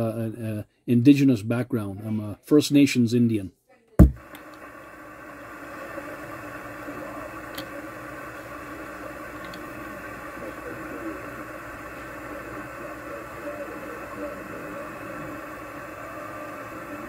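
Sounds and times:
weak distant radio station: 1.1 - 17.0
radio static and hiss: 4.0 - 17.0.

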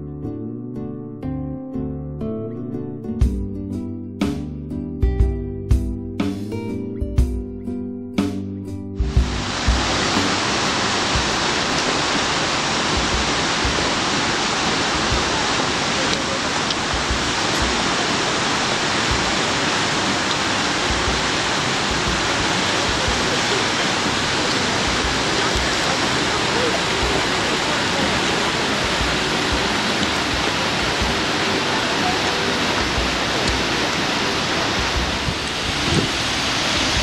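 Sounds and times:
flowing water: 9.0 - 37.0.

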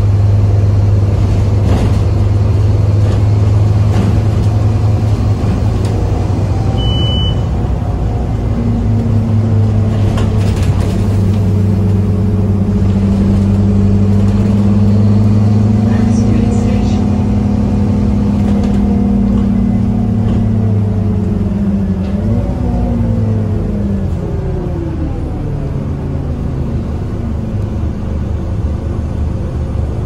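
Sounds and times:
bus diesel engine drone: 0.0 - 30.0
interior rattles: 1.0 - 6.3
short high beep: 6.8 - 7.5.

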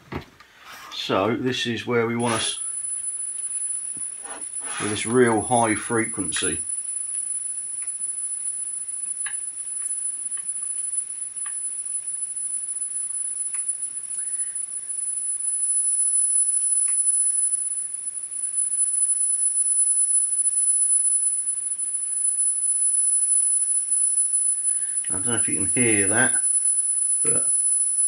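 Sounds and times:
steady high test tone: 1.0 - 28.0
screwdriver ticks: 9.1 - 11.7, 13.4 - 13.8.

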